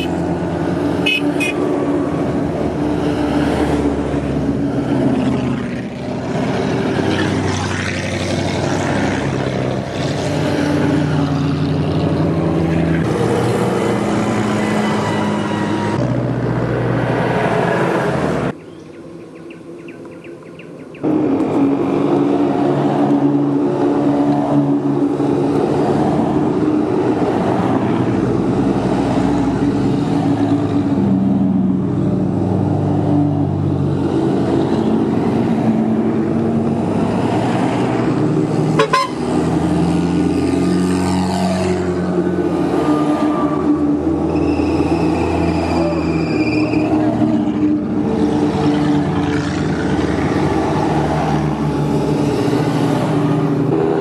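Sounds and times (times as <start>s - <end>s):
off-road vehicle engines running: 0.0s - 54.0s.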